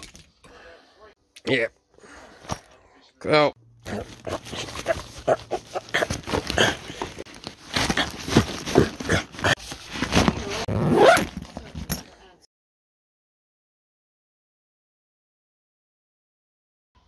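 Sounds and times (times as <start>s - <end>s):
backpack rustling and clicking: 4.1s - 12.1s.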